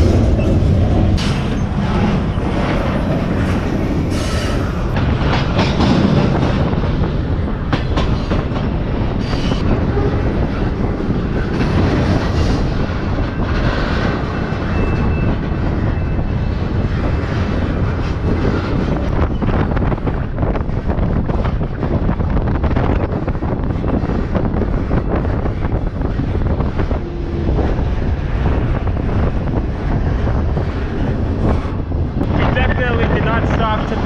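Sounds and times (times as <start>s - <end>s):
train wheels rumbling on rail: 0.0s - 34.0s
clanks and knocks: 4.9s - 6.9s, 7.7s - 8.7s.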